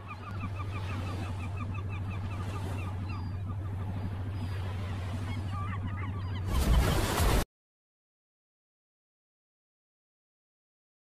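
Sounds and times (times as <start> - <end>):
boat engine drone: 0.0 - 7.2.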